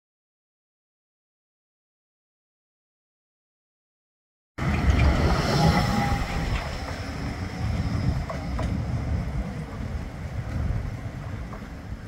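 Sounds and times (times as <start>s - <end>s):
low tram rumble: 4.6s - 12.0s
tram whine: 4.6s - 12.0s
wind buffeting microphone: 4.6s - 12.0s.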